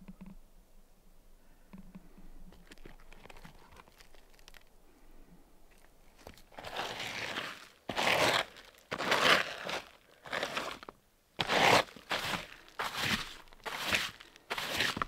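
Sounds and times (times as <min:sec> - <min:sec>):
glove scraping pine needles on shingles: 0:06.2 - 0:15.0.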